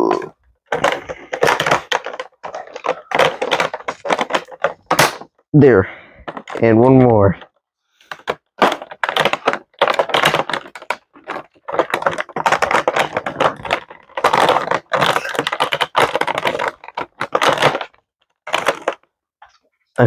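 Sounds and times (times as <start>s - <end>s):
plastic packaging crackling: 0.7s - 5.3s, 6.2s - 7.0s, 8.0s - 19.1s
scissors cutting plastic: 8.1s - 19.0s.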